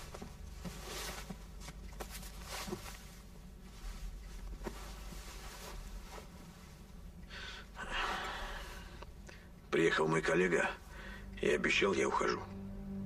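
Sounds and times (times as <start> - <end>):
rustling and shuffling: 0.0 - 9.2.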